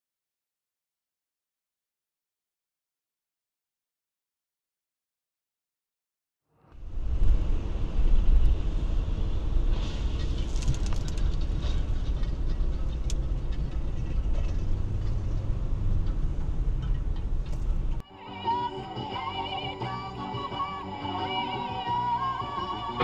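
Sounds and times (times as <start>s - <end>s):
car cabin road rumble: 6.8s - 18.0s.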